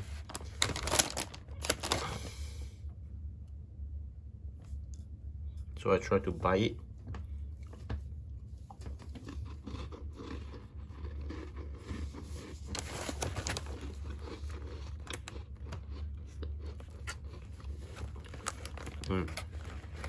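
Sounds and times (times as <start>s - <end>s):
person crunching a biscuit: 8.7s - 20.0s.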